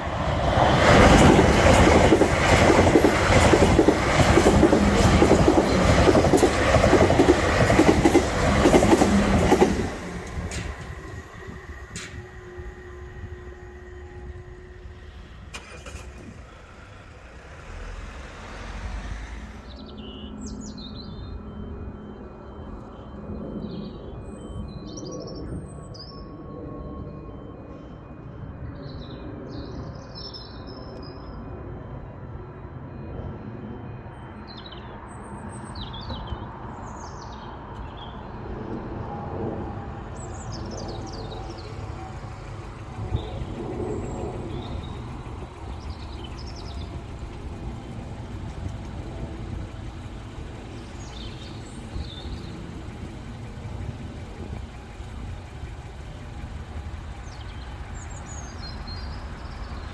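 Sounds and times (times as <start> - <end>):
steady low rumble: 38.8 - 59.9
small birds chirping: 40.2 - 59.9.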